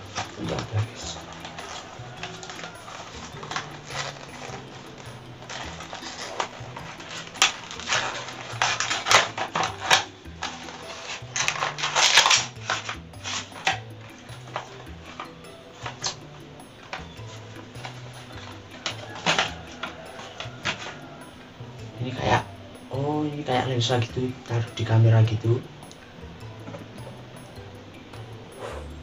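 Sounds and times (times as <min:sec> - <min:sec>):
packaging rustling and crinkling: 0:00.0 - 0:21.4
small lens pieces clinking: 0:00.0 - 0:21.5.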